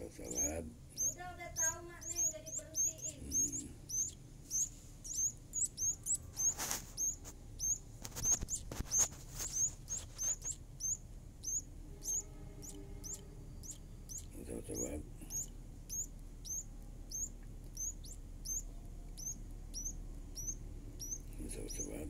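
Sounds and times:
chicks chirping: 0.0s - 22.0s
rustle: 6.3s - 10.6s.

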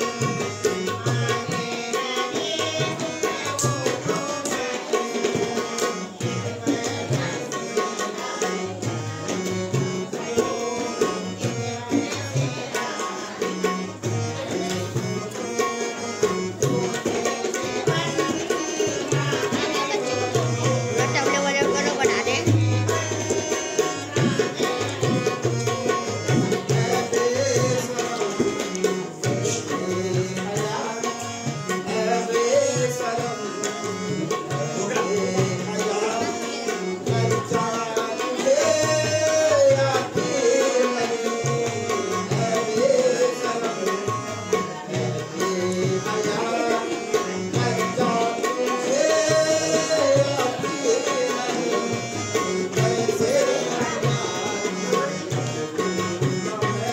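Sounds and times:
harmonium melody: 0.0s - 56.9s
tabla rhythm: 0.0s - 56.9s.

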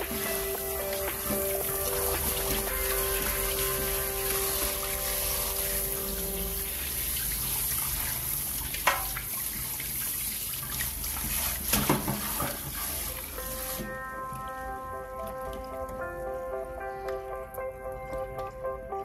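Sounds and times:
hands rinsing fish: 0.0s - 14.0s
tap running into steel sink: 8.8s - 9.2s.

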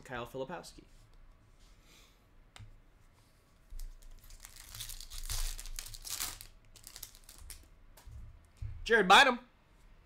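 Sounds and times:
foil wrapper tearing and crinkling: 3.8s - 7.7s.

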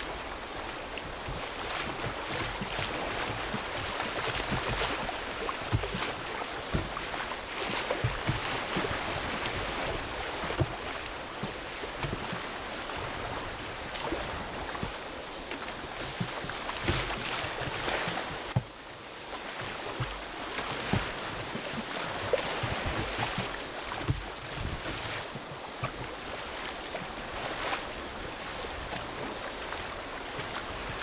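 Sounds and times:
waves splashing against kayak: 0.0s - 31.0s
whitewater rushing: 0.0s - 31.0s.

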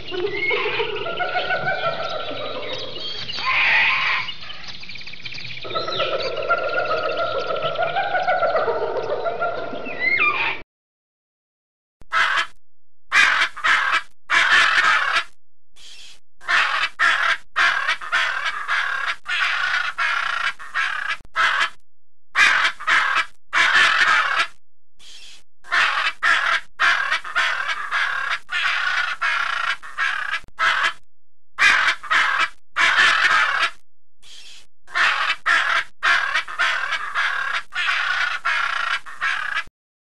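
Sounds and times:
macaw squawking: 0.1s - 4.3s, 12.1s - 12.5s, 13.2s - 21.8s, 22.4s - 31.0s, 31.6s - 39.7s.

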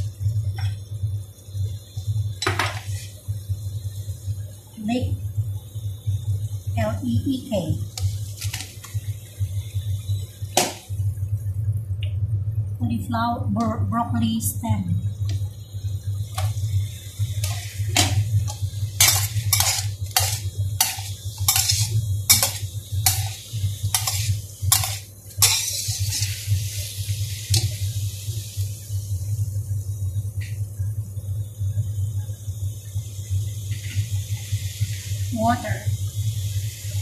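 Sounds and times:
steady low hum: 0.0s - 37.0s
metal spatula scraping a wok: 17.4s - 26.6s.

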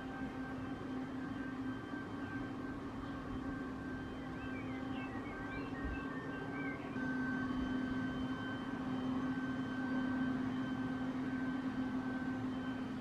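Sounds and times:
engine drone: 0.0s - 13.0s.

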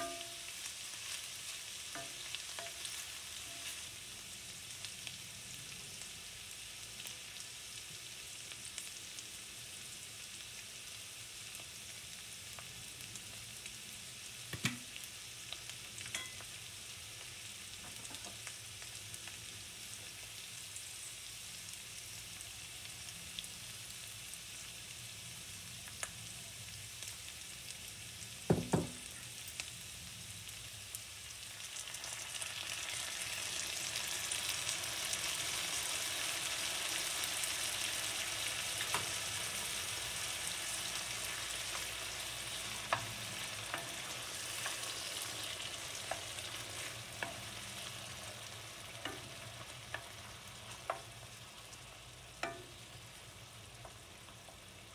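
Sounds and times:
knock on pan: 0.0s - 0.4s, 14.5s - 14.9s, 28.5s - 29.1s
bacon and onion sizzling: 0.0s - 54.9s.

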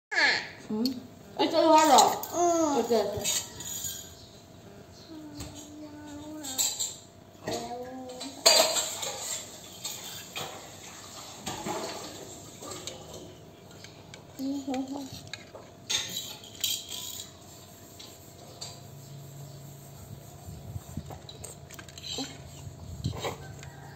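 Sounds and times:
child vocal sounds: 5.0s - 6.8s.

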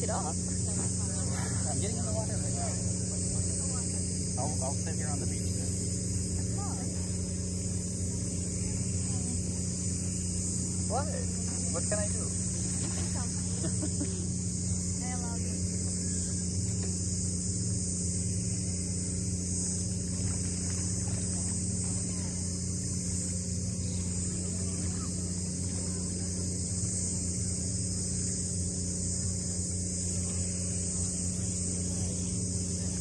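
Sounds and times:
insects chirring: 0.0s - 33.0s
steady low hum: 0.0s - 33.0s.

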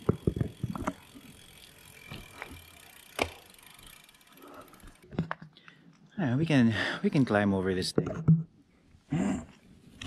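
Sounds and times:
freewheel ticking: 0.0s - 5.2s
bicycle rolling: 0.0s - 7.5s.

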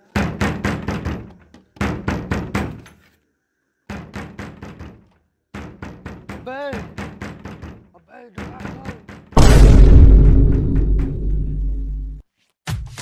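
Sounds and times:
fist knocking on wooden door: 0.1s - 2.8s, 3.9s - 9.4s.

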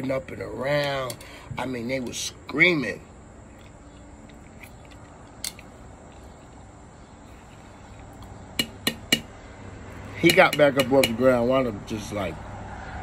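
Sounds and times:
insect drone: 0.1s - 10.2s.

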